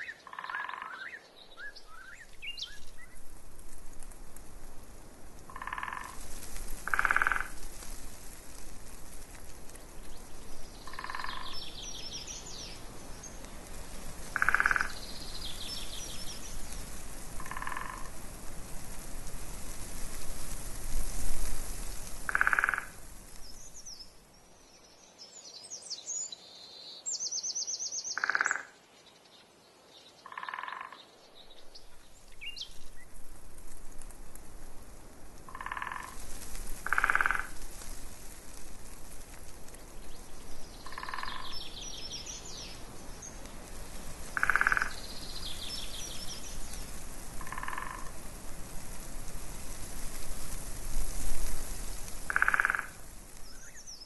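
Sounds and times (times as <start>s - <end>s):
songbirds chirping: 0.0s - 3.3s, 5.5s - 18.2s, 21.8s - 33.2s, 35.5s - 48.2s, 51.6s - 54.0s
frog croaking: 0.2s - 1.1s, 5.5s - 6.2s, 6.8s - 7.6s, 10.9s - 11.6s, 14.3s - 15.0s, 17.4s - 18.1s, 22.3s - 23.0s, 28.2s - 28.8s, 30.2s - 31.0s, 35.5s - 36.2s, 36.8s - 37.6s, 40.8s - 41.5s, 44.4s - 45.0s, 47.4s - 48.2s, 52.3s - 53.0s
wind rumble on microphone: 1.5s - 24.2s, 31.4s - 54.0s.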